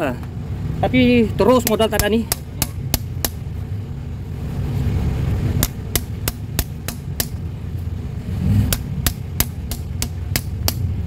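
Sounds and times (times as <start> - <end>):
steady low rumble: 0.0 - 11.0
hammer striking metal: 1.5 - 3.5, 5.6 - 7.4, 8.6 - 10.9.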